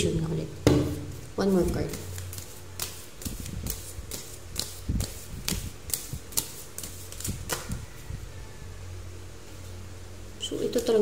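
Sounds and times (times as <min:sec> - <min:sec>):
cards being shuffled: 0:00.9 - 0:07.8.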